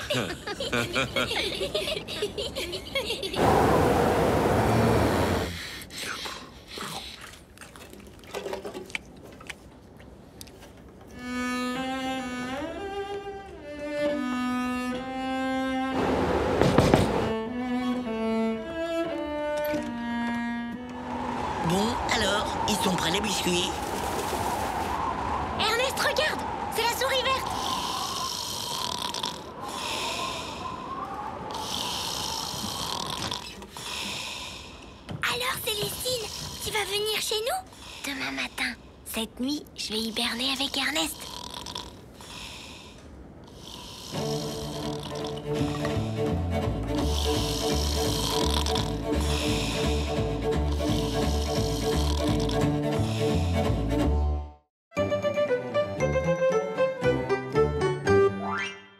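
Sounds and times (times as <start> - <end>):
solo violin melody: 11.1 - 16.0, 17.3 - 21.1
cartoon bear snoring: 27.7 - 30.4, 31.6 - 34.2, 41.0 - 42.4, 43.5 - 46.1, 46.9 - 53.6.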